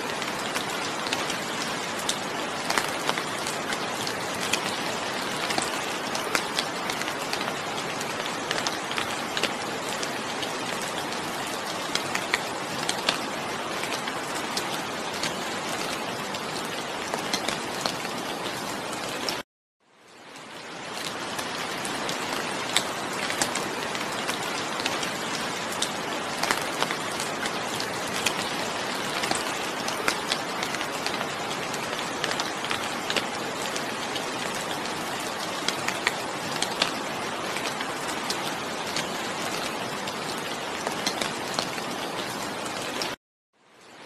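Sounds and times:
steady rain falling: 0.0s - 44.0s
raindrops ticking: 0.1s - 18.4s, 20.6s - 43.2s.

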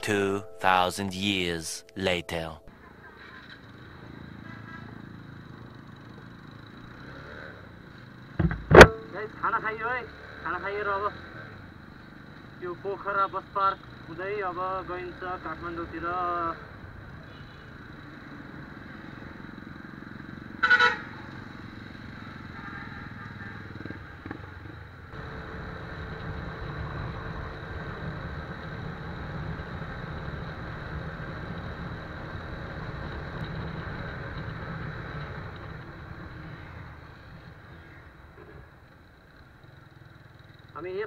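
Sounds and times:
road and wind noise: 2.7s - 41.0s
motorcycle engine running: 19.4s - 40.8s
vehicle horn honk: 20.6s - 21.1s.

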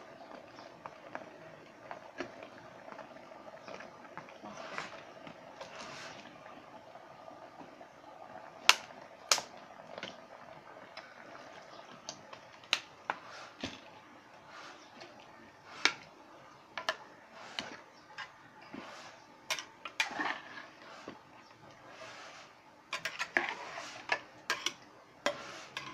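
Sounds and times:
metal spatula scraping pot: 16.8s - 25.9s.

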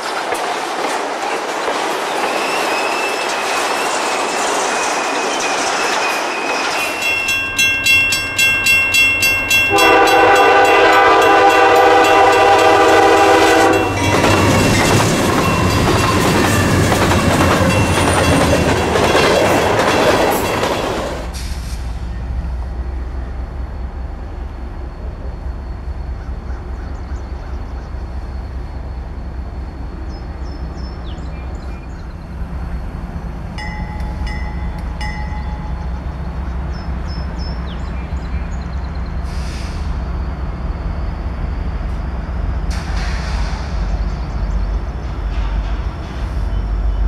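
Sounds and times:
diesel locomotive engines rumbling: 0.0s - 47.0s
freight train noise: 0.0s - 47.0s
faint high squeals: 2.1s - 7.3s
brief hissing rushes: 21.2s - 22.1s, 39.2s - 40.0s, 42.7s - 43.9s.

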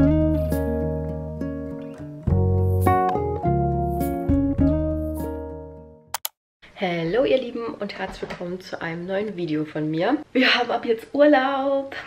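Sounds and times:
background music chords: 0.0s - 6.2s.

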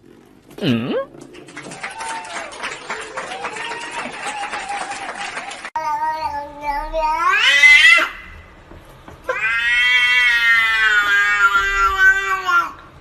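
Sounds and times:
cat meowing: 6.6s - 8.2s, 9.3s - 12.8s.

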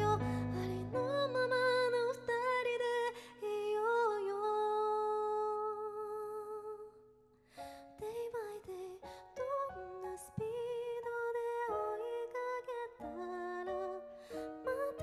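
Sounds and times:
keyboard chords: 0.0s - 2.1s
woman singing a pop ballad: 0.0s - 7.0s, 7.7s - 15.0s.

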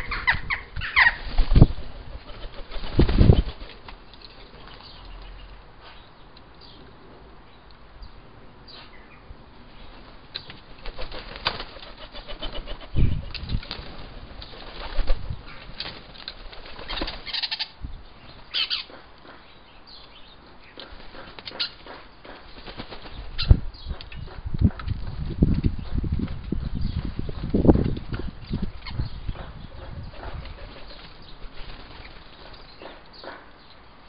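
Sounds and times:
pigeon wings clattering: 1.3s - 4.8s, 10.4s - 17.4s, 20.9s - 23.2s.

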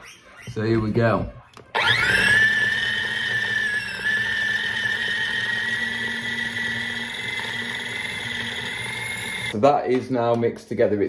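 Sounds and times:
food chopper motor whining: 1.7s - 9.6s.

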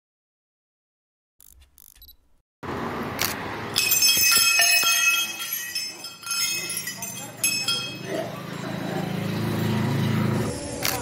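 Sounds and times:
noisy background: 2.6s - 11.0s
metal temple bell ringing: 3.8s - 8.6s.

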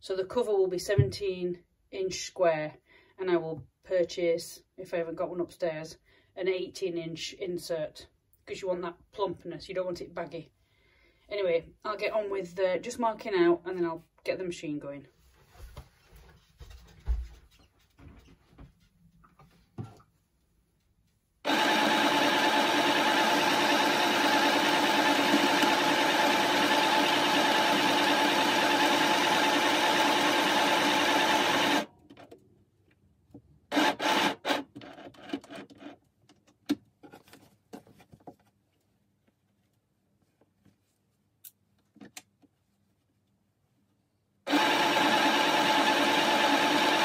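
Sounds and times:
sewing machine stitching: 21.5s - 31.9s, 33.7s - 36.0s, 44.5s - 47.0s.

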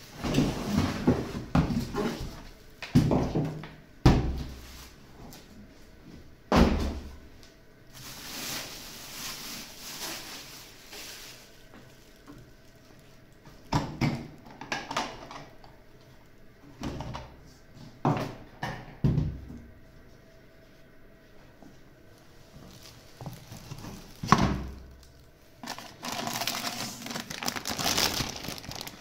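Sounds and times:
plastic wrapping rustling: 7.9s - 13.7s, 22.3s - 29.0s.

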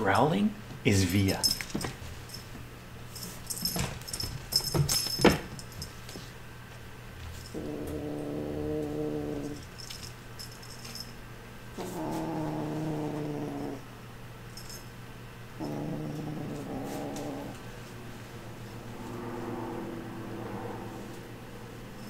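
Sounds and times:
kitten growling: 7.5s - 9.6s, 11.8s - 13.9s, 15.6s - 17.8s, 18.7s - 22.0s.

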